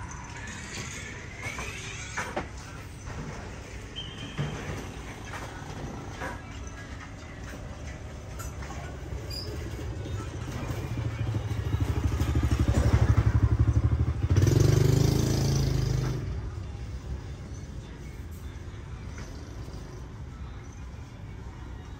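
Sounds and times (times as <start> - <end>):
motorbike engine passing: 9.5 - 16.7.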